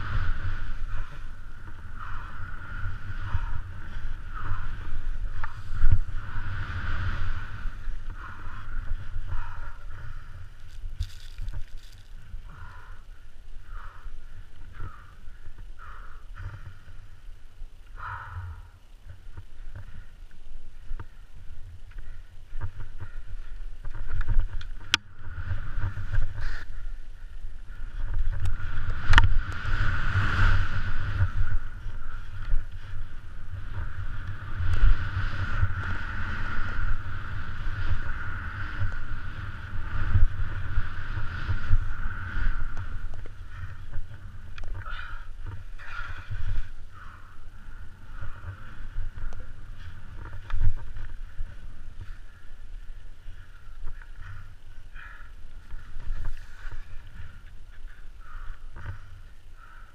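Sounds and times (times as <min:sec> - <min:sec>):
wind rumbling on microphone: 0:00.0 - 0:59.9
skis hissing through snow: 0:10.6 - 0:12.3.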